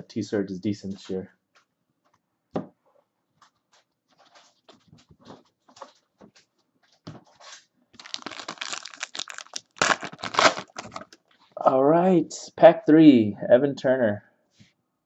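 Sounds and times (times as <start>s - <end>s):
foil wrapper tearing and crinkling: 8.0s - 11.2s.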